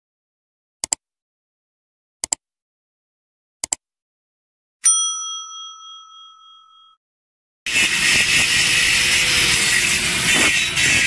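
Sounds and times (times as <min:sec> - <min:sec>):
bright bell ding: 0:04.8 - 0:07.0.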